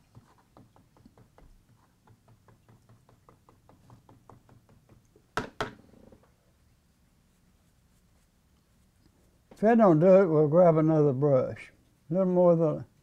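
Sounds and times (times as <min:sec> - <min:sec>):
paint brush ticking against container: 0:00.0 - 0:05.4
brush knocking on container: 0:00.0 - 0:05.8.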